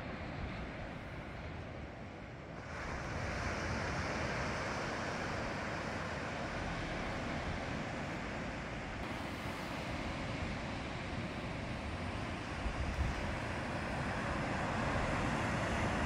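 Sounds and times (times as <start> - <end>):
sea surf breaking on beach: 2.6 - 16.0
wind buffeting microphone: 10.0 - 16.0.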